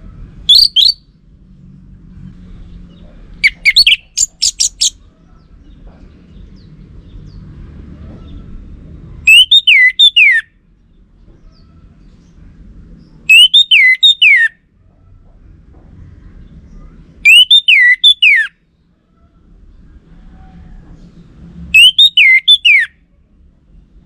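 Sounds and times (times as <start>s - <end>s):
bird chirping: 0.4s - 1.1s, 2.6s - 7.5s, 9.2s - 12.4s, 13.0s - 14.6s, 16.4s - 18.5s, 21.7s - 22.9s
bird whistles falling in pitch: 0.5s - 1.0s, 9.3s - 10.4s, 13.3s - 14.5s, 17.3s - 18.5s, 21.8s - 22.9s.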